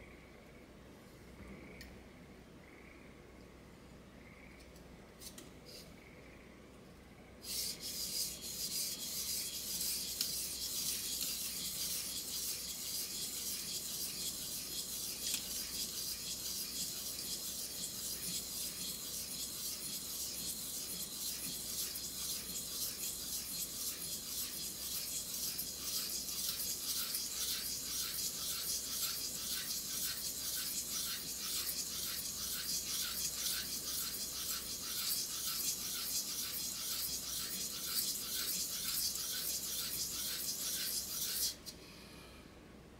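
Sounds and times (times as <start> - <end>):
knife scraping on whetstone: 7.4 - 41.7.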